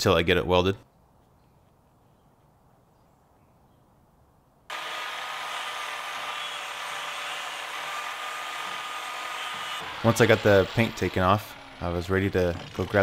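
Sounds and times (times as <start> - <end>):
power tool whining: 4.7 - 13.0.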